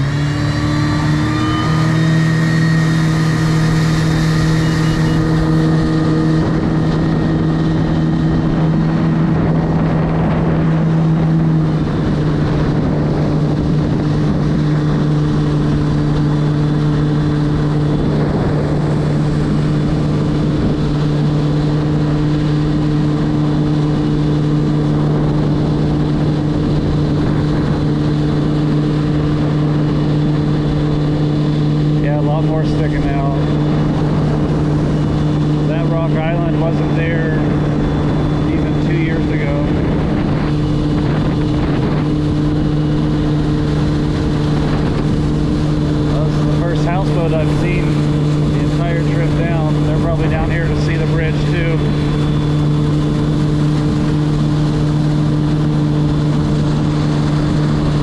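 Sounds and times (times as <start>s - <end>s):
jet ski engine droning: 0.0s - 58.0s
water and wind noise: 0.0s - 58.0s.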